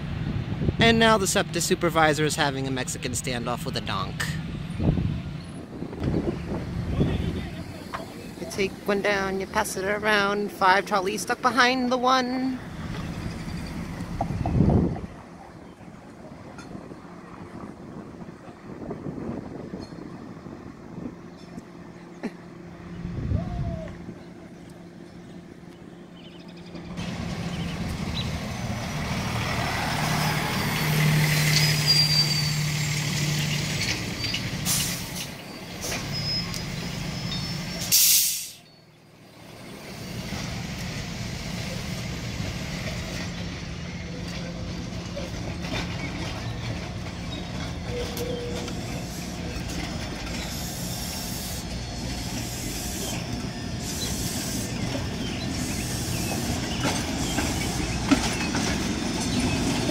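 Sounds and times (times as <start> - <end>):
heavy vehicles idling: 0.0 - 59.9
air brake hiss: 34.6 - 36.2, 37.8 - 38.7, 50.4 - 54.8.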